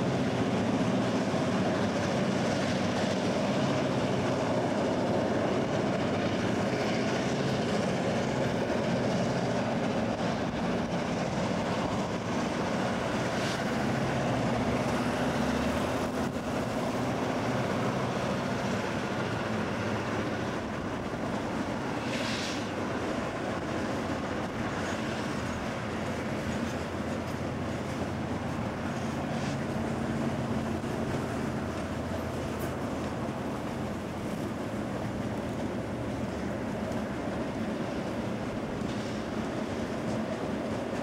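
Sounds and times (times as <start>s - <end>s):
steel wheels rumbling on rail: 0.0s - 41.0s
brief high hiss: 22.0s - 22.8s.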